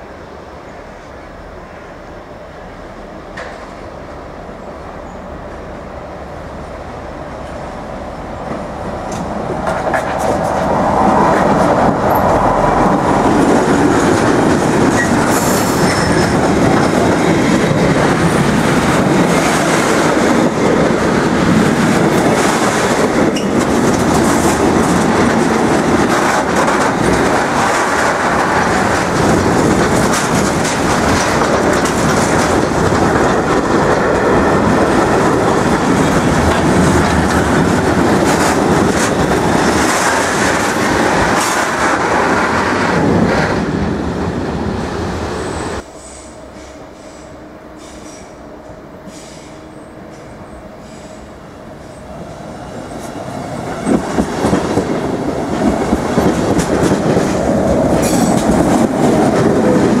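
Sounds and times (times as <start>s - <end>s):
freight train rolling past: 0.0s - 60.0s
wheels clattering over rail joints: 13.0s - 43.4s, 53.7s - 60.0s.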